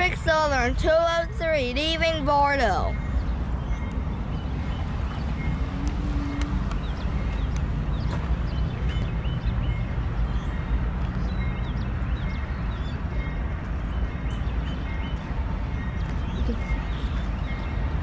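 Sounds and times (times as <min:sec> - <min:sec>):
diesel locomotive engine rumble: 0:00.0 - 0:18.0.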